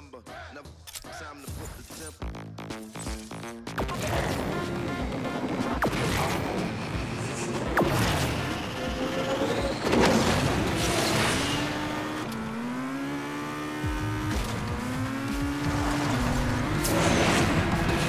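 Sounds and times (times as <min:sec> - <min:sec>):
car engine accelerating: 0:03.7 - 0:18.0
tyre and boost noise rush: 0:03.9 - 0:12.0.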